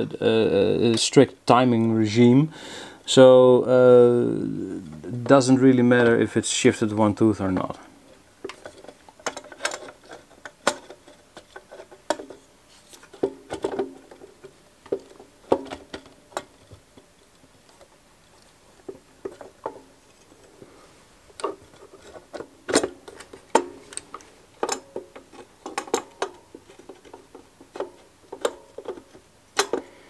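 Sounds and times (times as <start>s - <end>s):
metal parts clicking and tapping: 8.4s - 12.4s, 21.3s - 30.0s.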